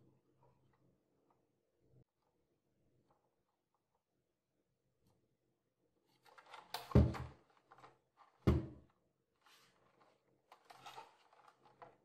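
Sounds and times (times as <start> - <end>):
plastic rubbing: 9.4 - 12.0.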